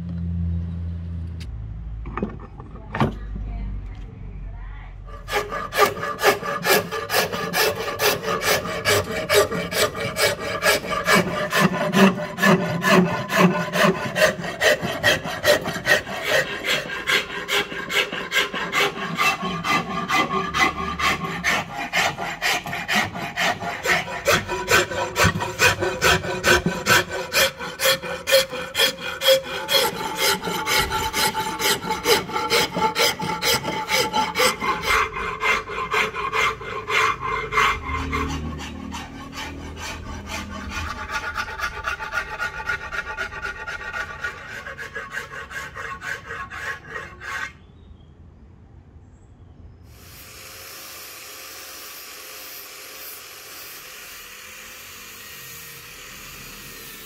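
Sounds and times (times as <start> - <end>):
metal file rasping on wood: 5.1 - 47.7.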